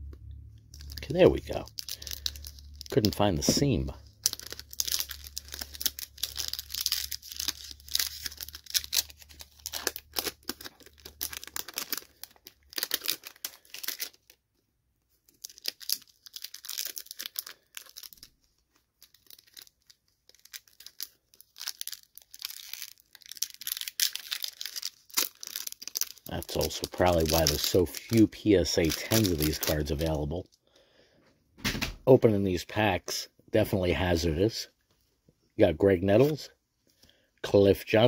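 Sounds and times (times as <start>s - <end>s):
plastic wrapper crinkling and tearing: 0.5s - 30.6s.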